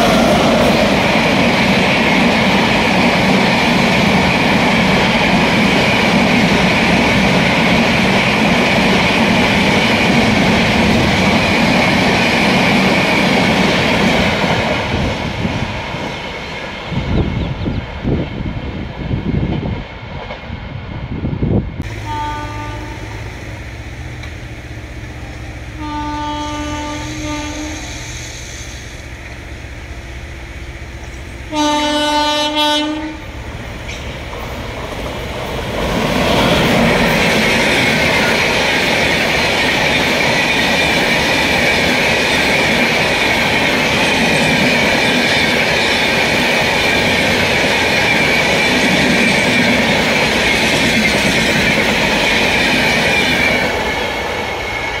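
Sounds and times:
train coaches rumbling past: 0.0 - 55.0
train horn blasts: 21.8 - 23.4, 25.6 - 28.2, 31.5 - 33.4.

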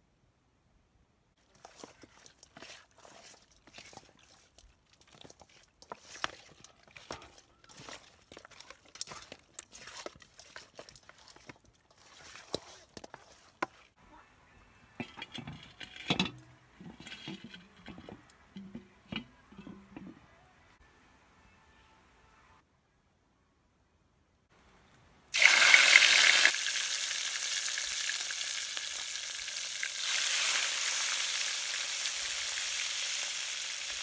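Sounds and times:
wet squelches of hand mixing meat: 1.4 - 14.0.

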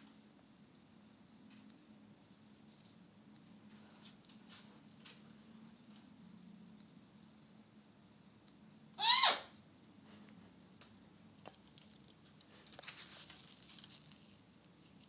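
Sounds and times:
parrot call: 9.0 - 9.6.

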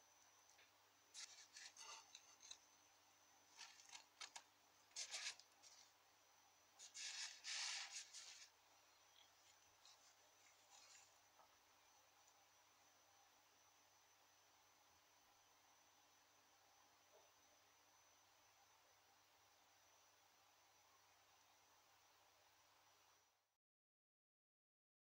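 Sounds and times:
fingers rubbing a metal ring: 1.2 - 2.6.

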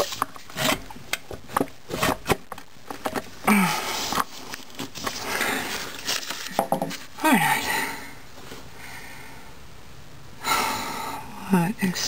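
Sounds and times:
breathy vocal sound: 3.4 - 4.2.

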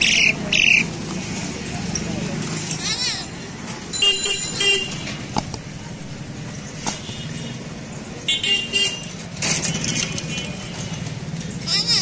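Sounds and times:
low traffic rumble: 0.0 - 12.0
vehicle horns honking: 4.0 - 5.2, 6.9 - 7.7, 8.3 - 10.8.

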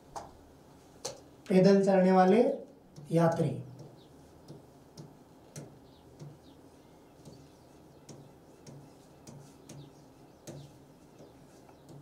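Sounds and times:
marker squeaking on board: 3.7 - 12.0.

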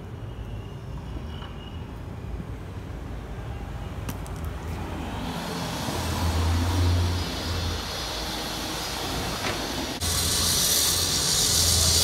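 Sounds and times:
vehicle rumble: 2.0 - 12.0
steady hiss: 5.2 - 12.0.

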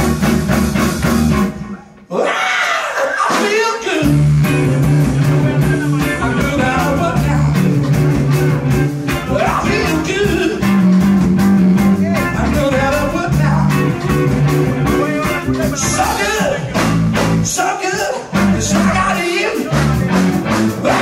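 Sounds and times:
electric bass: 0.0 - 2.0, 4.0 - 21.0
drum kit beat: 0.0 - 2.1, 3.2 - 21.0
electric guitar: 0.0 - 2.1, 4.0 - 21.0
man singing into a microphone: 5.4 - 7.6, 9.3 - 10.7, 12.2 - 13.8, 15.0 - 16.8, 17.4 - 19.8, 20.8 - 21.0.

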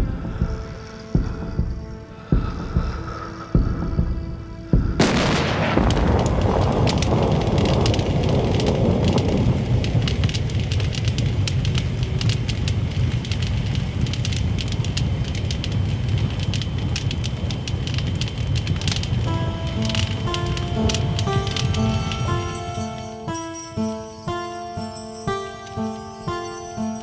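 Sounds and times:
fire burning with crackles: 0.0 - 27.0
large explosion: 5.0 - 10.8.

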